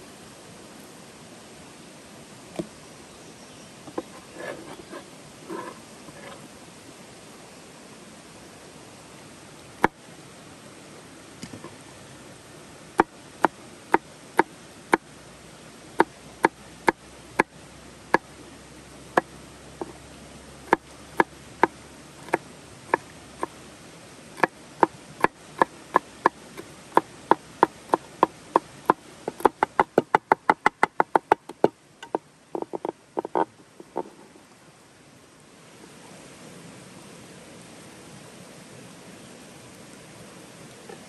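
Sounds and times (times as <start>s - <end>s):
knife chopping on wooden board: 22.2s - 23.0s, 28.8s - 33.4s.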